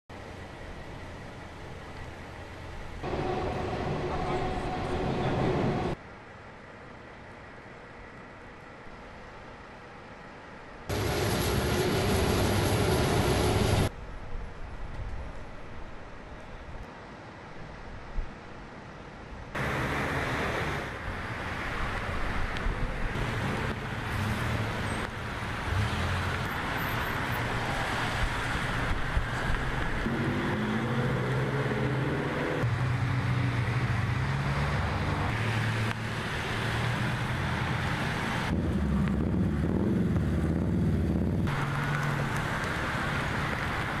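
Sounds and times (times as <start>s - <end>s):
tyre and road noise: 0.1s - 44.0s
vehicle engines running: 10.9s - 13.9s, 19.6s - 44.0s.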